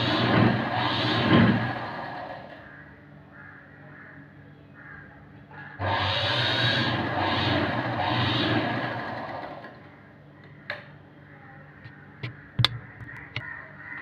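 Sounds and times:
sewing machine stitching: 0.0s - 2.6s, 5.8s - 9.8s.

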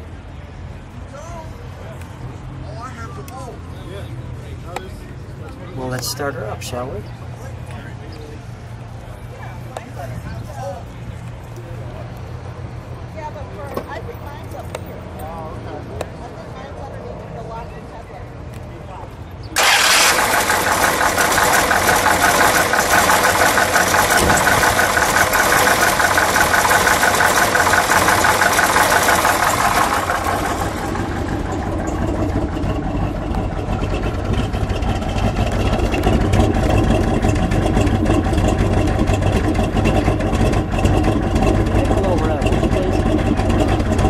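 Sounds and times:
car engine idling: 19.6s - 44.0s.

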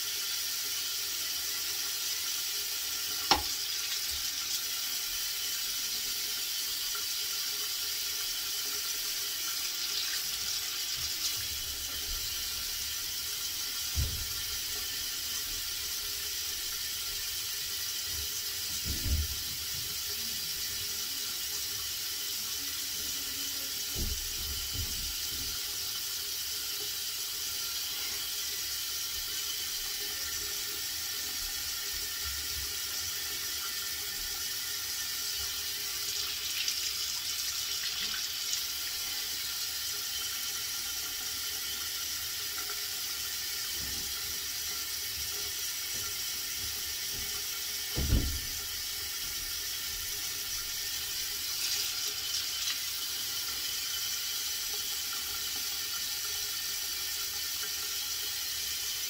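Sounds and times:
tap water running into sink: 0.0s - 59.0s
short knock: 3.3s - 3.5s, 48.0s - 48.5s.

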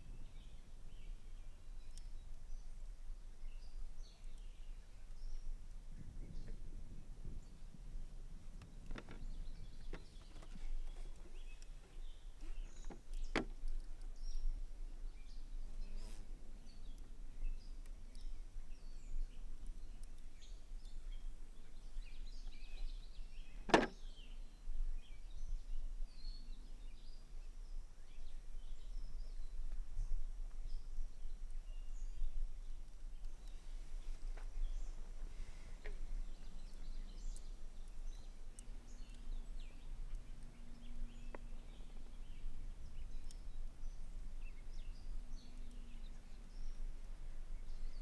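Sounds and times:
faint clicks: 19.6s - 21.0s, 32.8s - 33.6s
low steady hum: 31.9s - 48.0s.

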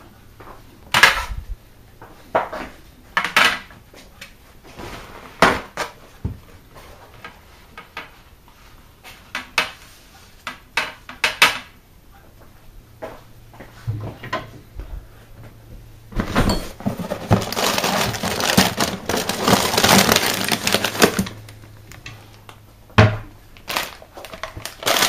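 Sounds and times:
dishes and cups clattering: 16.2s - 17.7s.

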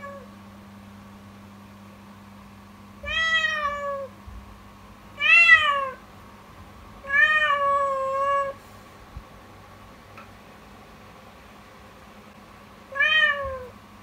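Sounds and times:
young cat meowing loudly: 3.0s - 4.1s, 5.2s - 6.0s, 7.0s - 8.6s, 12.9s - 13.7s.

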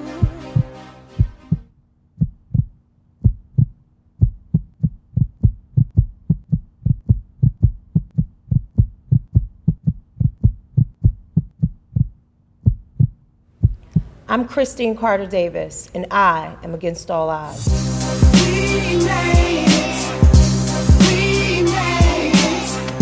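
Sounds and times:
closing song: 0.0s - 1.7s, 17.5s - 23.0s
heartbeat thumps: 0.2s - 14.2s.

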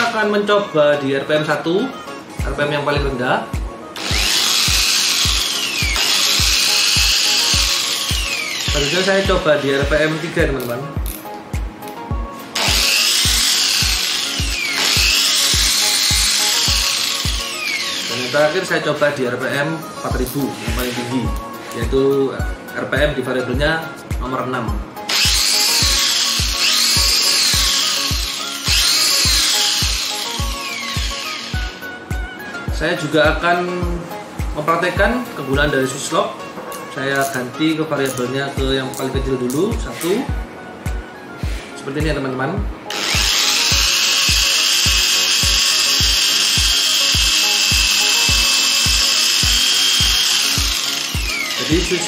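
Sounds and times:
background music beat: 0.0s - 52.0s
electric polisher motor whine: 4.0s - 10.4s, 12.4s - 18.9s, 25.1s - 32.0s, 42.8s - 52.0s.

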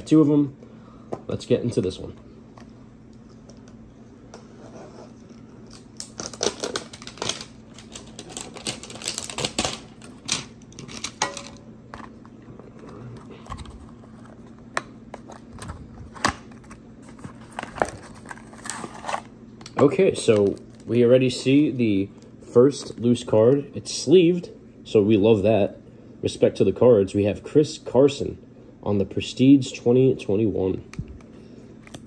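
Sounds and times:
cardboard rustling and scraping: 15.2s - 19.3s.

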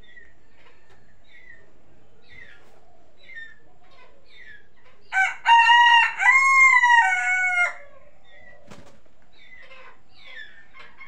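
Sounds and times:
rooster crowing: 5.1s - 7.9s.

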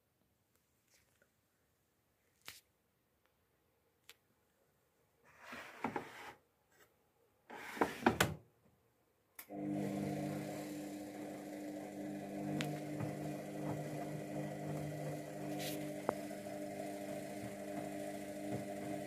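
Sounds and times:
washing machine humming: 9.5s - 19.0s.

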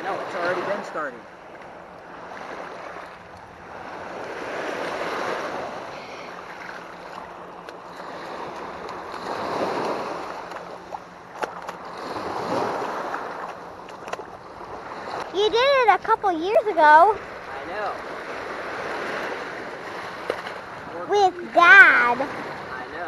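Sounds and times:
small waves washing in shallow water: 0.0s - 23.0s.

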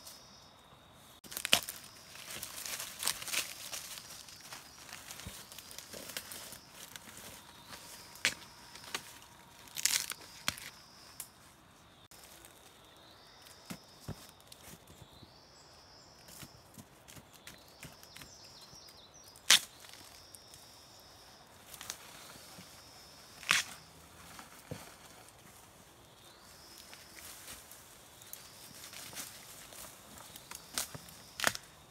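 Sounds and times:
dry leaves rustling: 1.2s - 10.8s
bamboo stems snapping: 1.3s - 4.0s, 8.1s - 11.3s, 19.4s - 20.0s, 23.4s - 23.8s, 30.3s - 31.7s.

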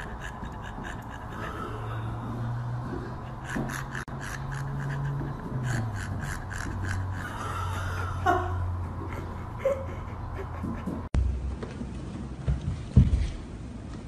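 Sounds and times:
dog panting hard: 0.0s - 11.2s.

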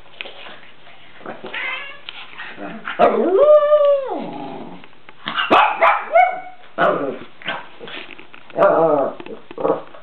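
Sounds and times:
small dog barking and yipping: 5.3s - 6.6s.

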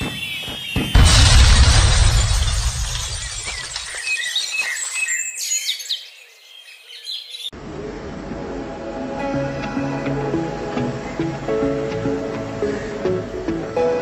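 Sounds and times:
background music: 7.6s - 14.0s.

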